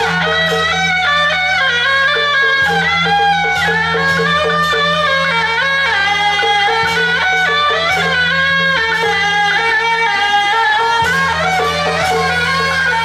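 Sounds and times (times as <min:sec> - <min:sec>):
shrill double-reed horn melody: 0:06.3 - 0:13.0.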